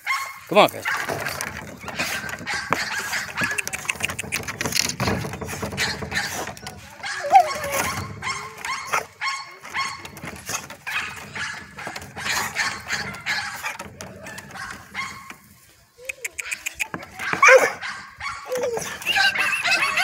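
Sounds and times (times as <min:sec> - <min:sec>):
short clicks and knocks: 0:00.9 - 0:07.0, 0:07.7 - 0:15.6
dog whining and barking: 0:05.6 - 0:10.2, 0:16.4 - 0:20.0.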